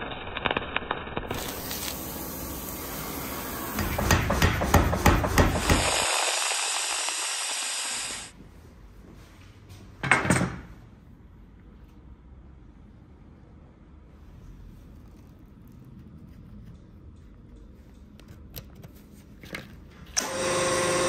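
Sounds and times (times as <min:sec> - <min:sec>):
arc welding hiss and crackle: 0:00.0 - 0:08.4
angle grinder grinding steel: 0:05.4 - 0:08.3.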